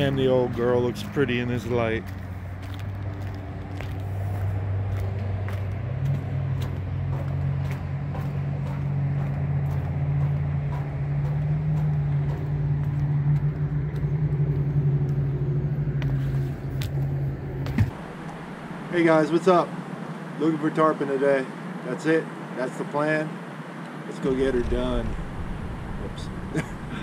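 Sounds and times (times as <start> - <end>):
footsteps on wooden planks: 0.0 - 18.0
vehicle engine humming: 0.0 - 27.0.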